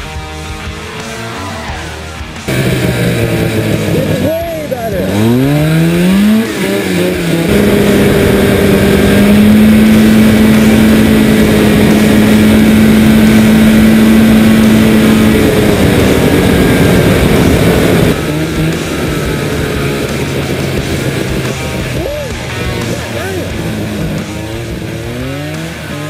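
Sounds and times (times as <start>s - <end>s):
engine revving at high pitch: 0.0s - 26.0s.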